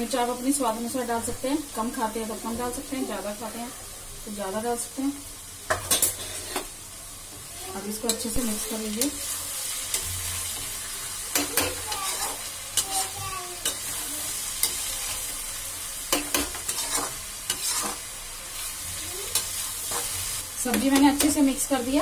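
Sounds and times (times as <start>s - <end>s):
vegetables sizzling in oil: 0.0s - 22.0s
utensil scraping and knocking pan: 16.2s - 18.0s.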